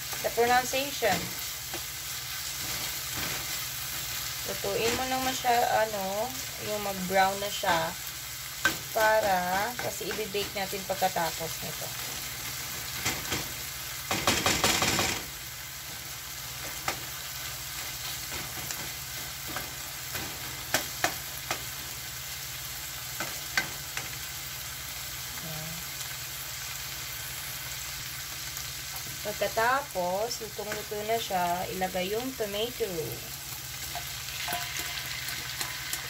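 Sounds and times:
bacon and onion sizzling in a wok: 0:00.0 - 0:36.0
spatula tapping a pan: 0:14.1 - 0:15.2
spatula scraping a pan: 0:33.9 - 0:36.0.

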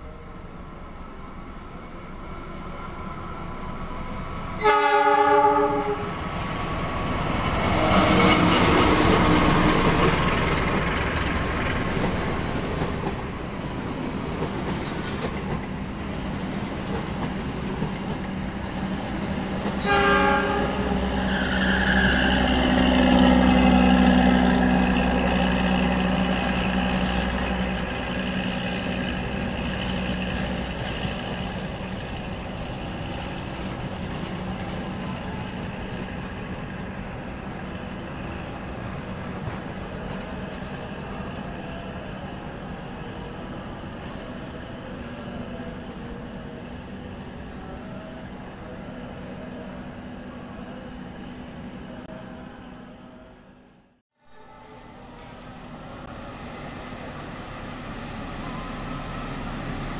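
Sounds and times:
train rumble and clatter: 0:00.0 - 0:52.6, 0:54.4 - 0:59.9
locomotive horn: 0:04.6 - 0:06.2, 0:19.7 - 0:27.4.

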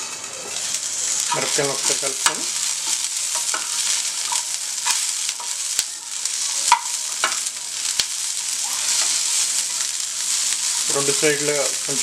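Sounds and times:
chillies sizzling in oil: 0:00.0 - 0:12.0.

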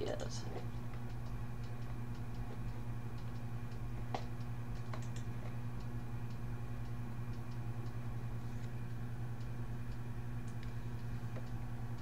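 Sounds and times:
low electrical hum: 0:00.0 - 0:12.0
computer mouse clicks: 0:04.2 - 0:05.3.

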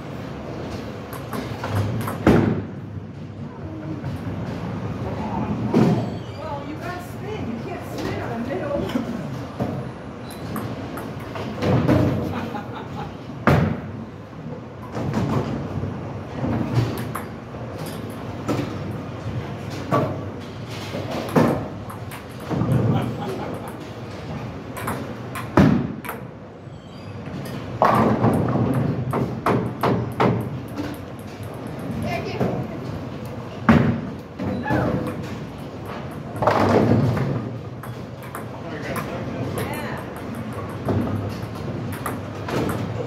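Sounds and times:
bowling ball rolling: 0:14.9 - 0:26.2.

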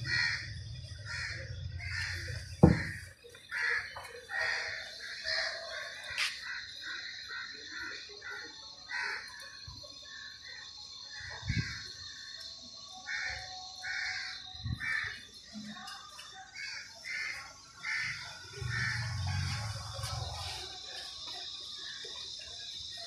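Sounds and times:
dull thumps: 0:02.6 - 0:03.0.

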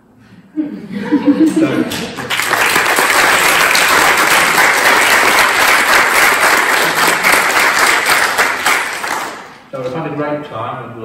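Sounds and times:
audience applauding: 0:02.0 - 0:09.7.

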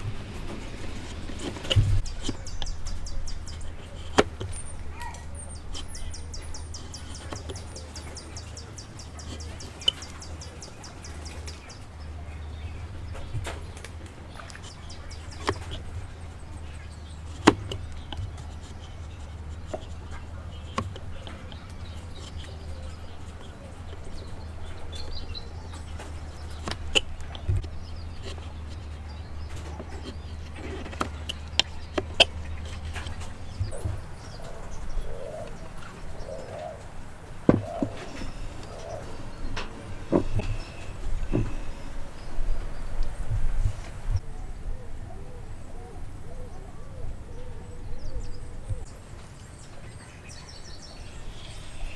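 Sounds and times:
chisel paring wood: 0:00.0 - 0:04.6, 0:17.3 - 0:24.2, 0:26.3 - 0:28.9, 0:37.5 - 0:38.4.

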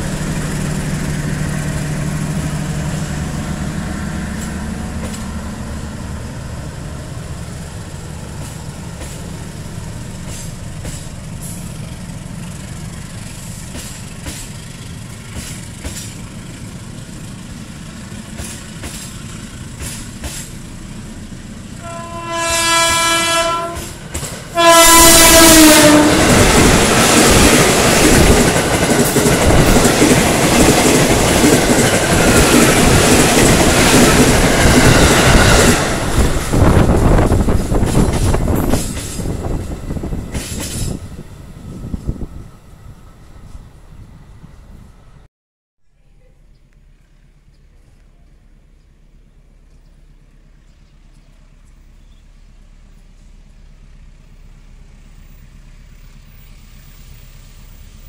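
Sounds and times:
loud wheel-on-rail noise: 0:00.0 - 0:45.3, 0:46.7 - 0:58.0
train rumbling over rails: 0:00.0 - 0:45.3, 0:46.7 - 0:58.0
wheels clicking over rail joints: 0:10.2 - 0:16.5, 0:18.2 - 0:20.8, 0:23.6 - 0:24.6, 0:25.6 - 0:41.1
train horn: 0:21.8 - 0:26.5.

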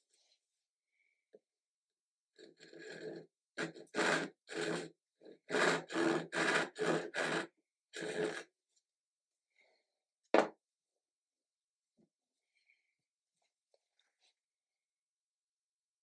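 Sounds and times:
hand saw cutting wood: 0:02.4 - 0:08.5.

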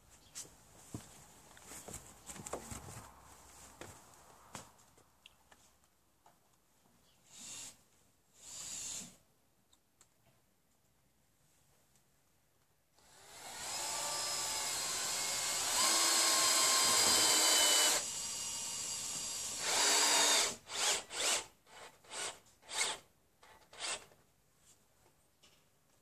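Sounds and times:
cordless drill motor whine: 0:13.1 - 0:21.3.

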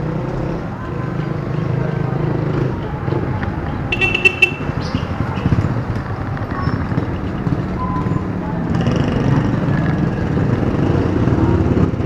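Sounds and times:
vehicle engines running: 0:00.0 - 0:12.0
vehicle horn toot: 0:03.9 - 0:04.9.

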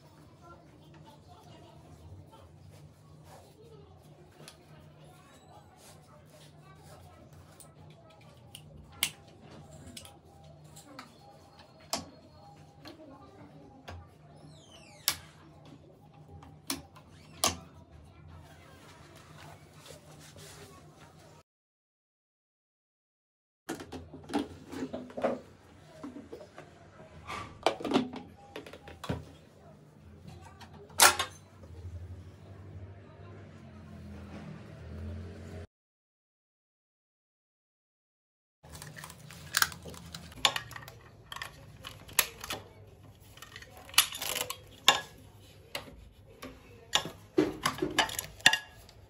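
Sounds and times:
plastic bucket clacking and rattling: 0:23.7 - 0:26.6, 0:27.4 - 0:29.4, 0:46.9 - 0:48.6.

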